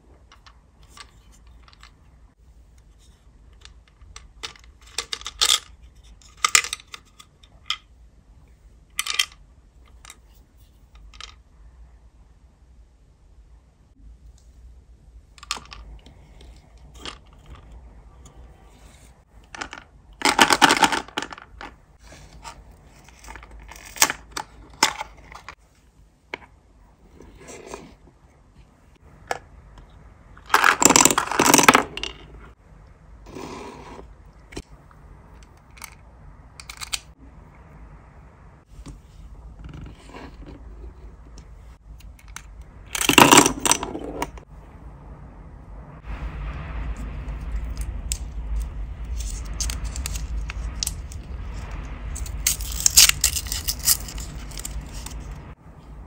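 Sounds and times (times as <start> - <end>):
packaging clicks and rattles: 52.2 - 55.2.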